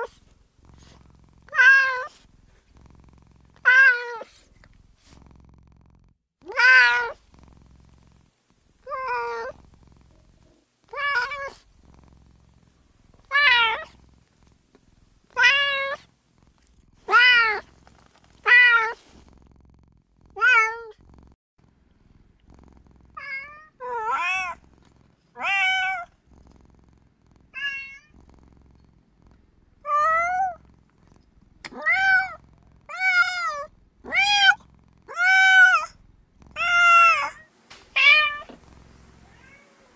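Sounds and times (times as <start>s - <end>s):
cat meowing: 1.5s - 2.1s, 3.6s - 4.3s, 6.4s - 7.2s, 8.8s - 9.5s, 10.9s - 11.6s, 13.3s - 13.9s, 15.4s - 16.0s, 17.1s - 17.7s, 18.4s - 19.0s, 20.4s - 21.0s, 23.2s - 24.6s, 25.4s - 26.1s, 27.5s - 28.1s, 29.9s - 30.6s, 31.7s - 36.0s, 36.6s - 38.6s, 39.2s - 39.9s.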